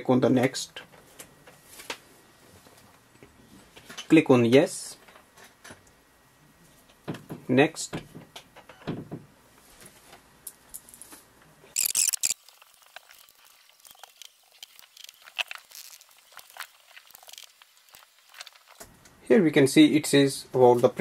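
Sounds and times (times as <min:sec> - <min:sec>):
crackling rustle: 0:09.7 - 0:19.2.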